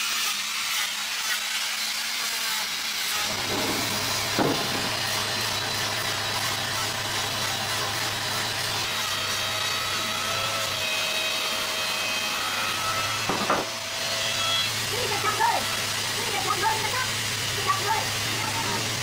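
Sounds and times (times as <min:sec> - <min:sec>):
angle grinder sanding wood: 0:00.0 - 0:19.0
brief knock: 0:03.5 - 0:05.0.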